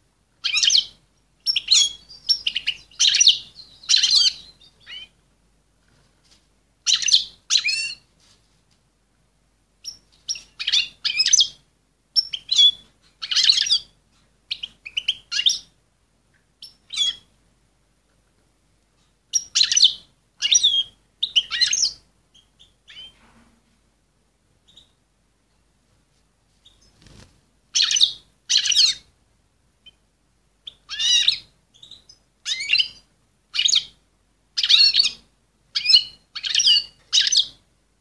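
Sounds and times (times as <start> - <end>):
goldfinch twittering chirps: 0.4 - 5.1, 27.8 - 29.0, 35.8 - 37.5.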